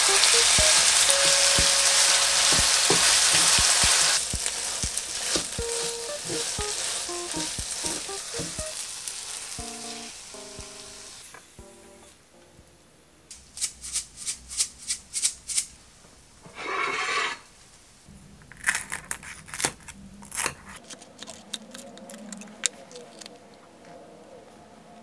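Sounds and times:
spatula scraping and tapping pan: 1.2s - 8.6s
chopsticks breaking crisp skin: 18.6s - 23.4s.

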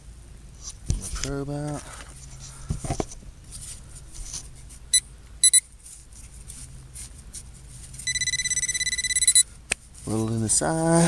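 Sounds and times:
metal detector beeping: 4.9s - 5.7s, 8.0s - 9.5s.

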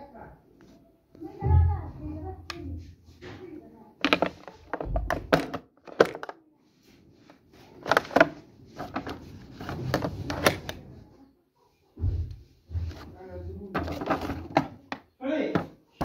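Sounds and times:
plastic clicks and knocks: 4.0s - 6.4s, 7.8s - 10.8s.

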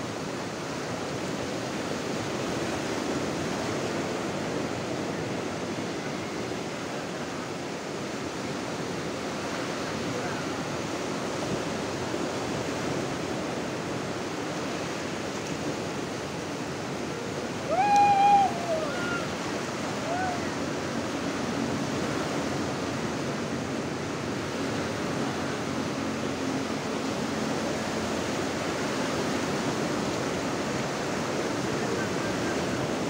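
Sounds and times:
waves breaking on a beach: 0.0s - 33.0s
person shouting: 17.6s - 19.3s, 20.0s - 20.6s.

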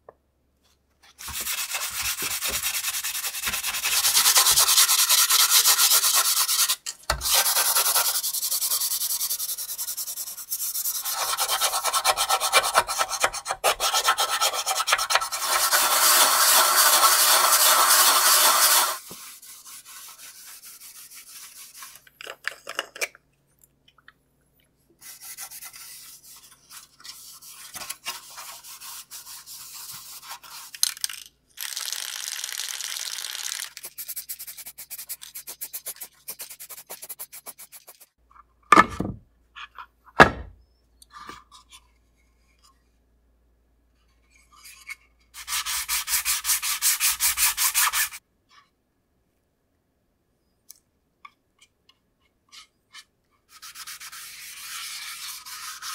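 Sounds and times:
aerosol can spraying: 15.4s - 19.0s, 31.6s - 38.1s.

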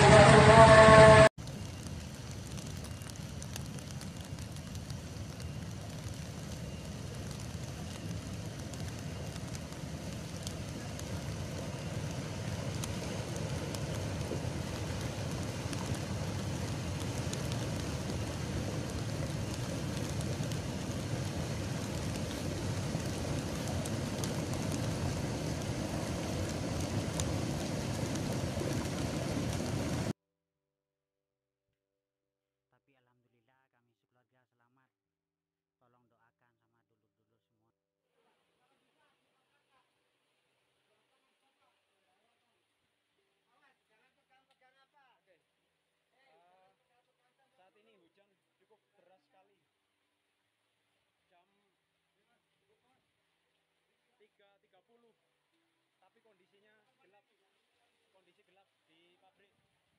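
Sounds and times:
mudflow rumbling rush: 0.0s - 30.1s.

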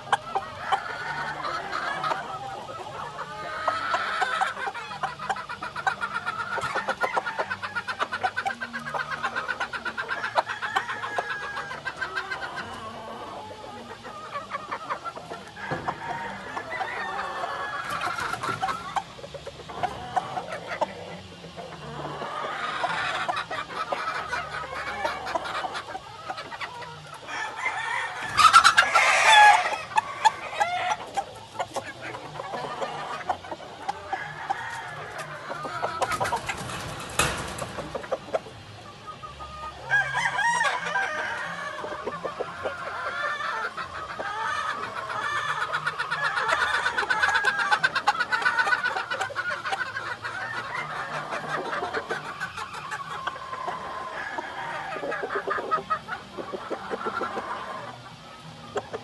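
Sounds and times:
chickens clucking: 0.0s - 59.0s
rooster crowing: 10.3s - 11.8s, 15.6s - 18.2s, 27.2s - 31.1s, 34.0s - 37.6s, 39.8s - 41.9s.

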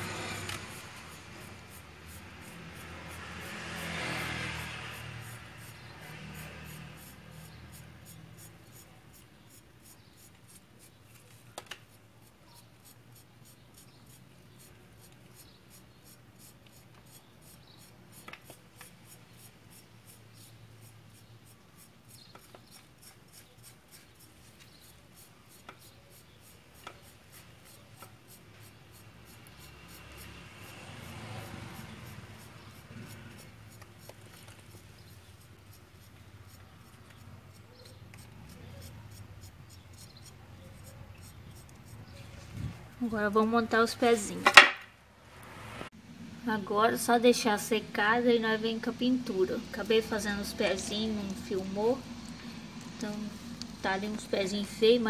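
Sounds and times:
knife scraping wet mortar: 12.2s - 43.3s.

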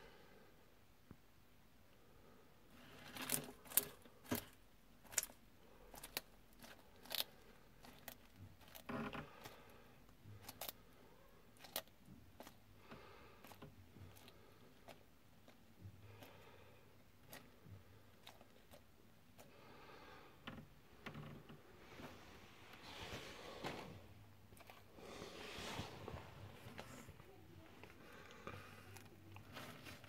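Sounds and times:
lizard crunching insect: 2.8s - 10.9s, 11.5s - 16.6s, 17.2s - 19.5s
soft rustles: 21.0s - 30.0s.

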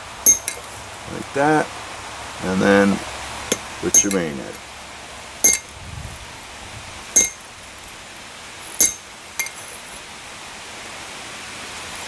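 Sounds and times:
hammer striking chisel on metal: 0.3s - 0.6s, 3.5s - 4.3s, 5.4s - 5.7s, 7.2s - 7.4s, 8.8s - 9.6s.

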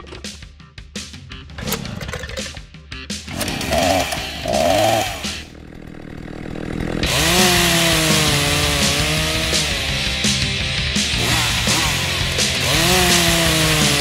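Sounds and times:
chainsaw cutting wood: 3.2s - 10.4s, 11.0s - 14.0s.

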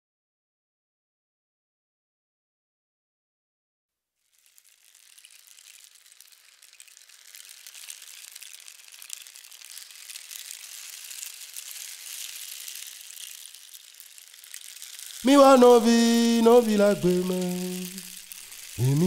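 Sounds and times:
rain falling: 4.3s - 19.0s.

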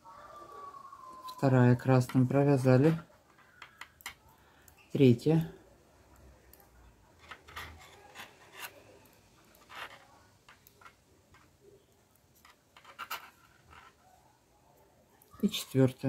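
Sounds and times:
knitting needles clicking: 2.0s - 4.8s, 6.0s - 14.0s
yarn rubbing: 7.1s - 11.6s.

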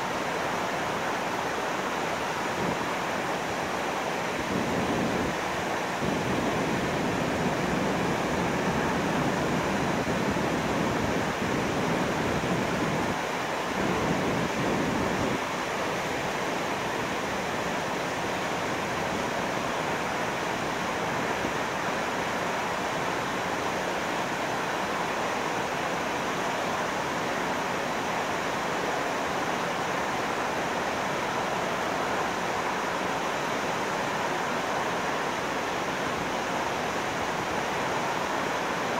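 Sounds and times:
water rushing through sluice gates: 0.0s - 38.9s.

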